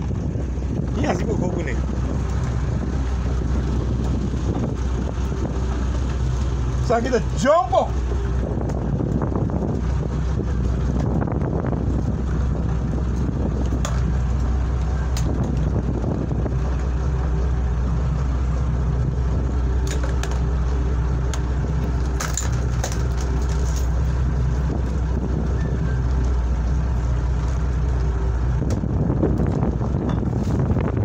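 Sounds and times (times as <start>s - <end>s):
boat engine humming: 0.0s - 31.0s
water noise: 0.0s - 31.0s
wind: 0.0s - 31.0s
sharp clicks and knocks: 19.8s - 20.5s.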